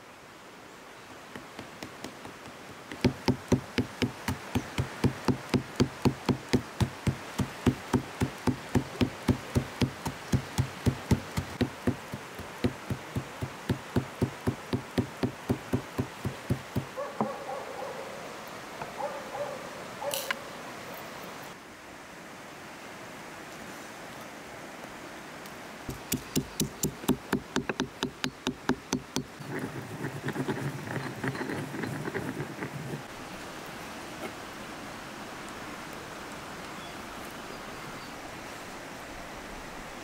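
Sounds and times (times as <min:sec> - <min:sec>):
pestle pounding salt in mortar: 0:01.4 - 0:16.9, 0:25.9 - 0:33.1
pestle scraping: 0:01.4 - 0:17.0, 0:25.9 - 0:33.1.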